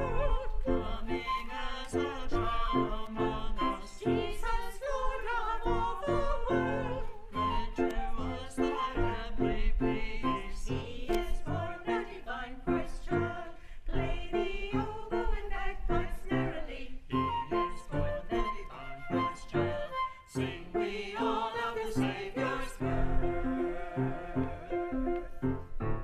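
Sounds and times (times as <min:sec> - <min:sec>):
voices singing a hymn: 0:00.0 - 0:25.6.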